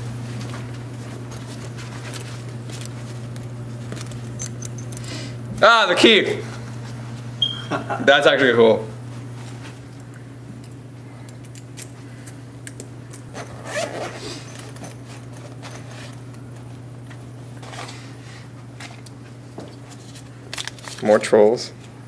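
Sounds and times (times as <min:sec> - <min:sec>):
steady low hum: 0:00.0 - 0:22.0
zipper pulled open: 0:13.3 - 0:14.5.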